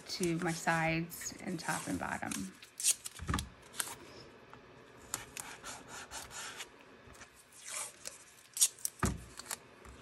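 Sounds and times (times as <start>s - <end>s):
sharp crackle of tape: 1.6s - 4.0s, 7.5s - 9.7s.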